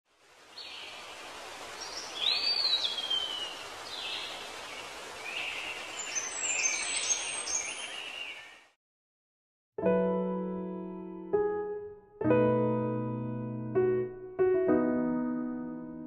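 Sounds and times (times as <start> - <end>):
steady outdoor hiss: 0.1 - 8.6
birds chirping and calling: 1.8 - 8.5.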